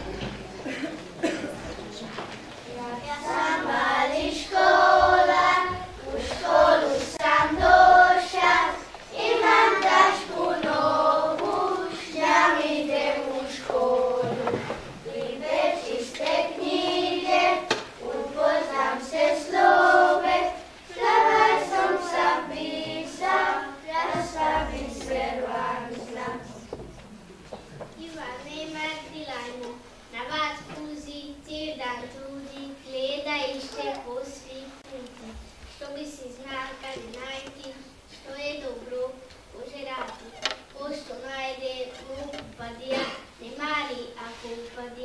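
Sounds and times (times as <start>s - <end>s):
children's choir singing: 2.6s - 26.8s.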